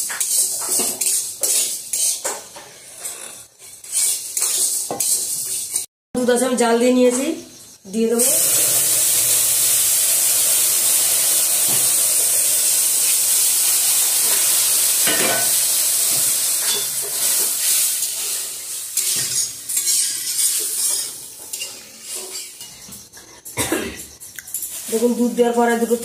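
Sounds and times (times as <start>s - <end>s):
milk sizzling in hot wok: 0.0s - 5.9s, 7.6s - 23.2s, 24.3s - 26.0s
metal ladle scraping pan: 0.3s - 5.8s, 16.2s - 22.7s.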